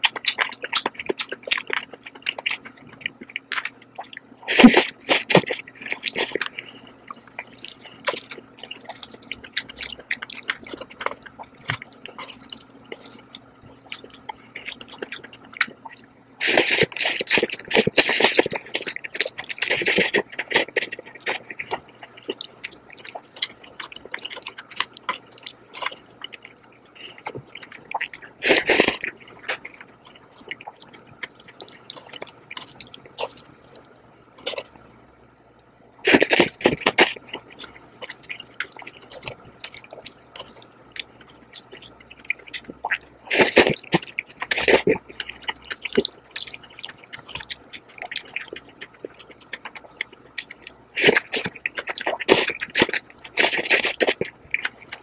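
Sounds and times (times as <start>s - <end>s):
wet chewing and smacking: 0.0s - 55.0s
noodle slurps: 4.0s - 13.3s, 15.8s - 22.5s, 27.1s - 29.8s, 36.0s - 55.0s.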